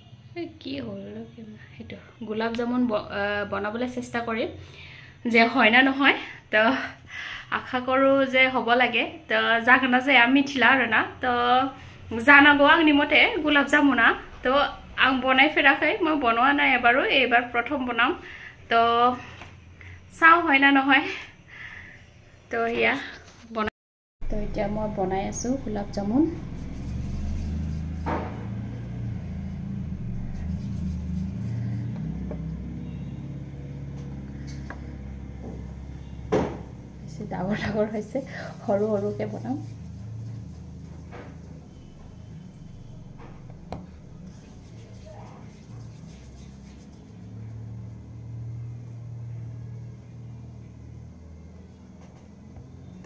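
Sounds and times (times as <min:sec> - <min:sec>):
low mechanical rumble: 0:24.2 - 0:53.0.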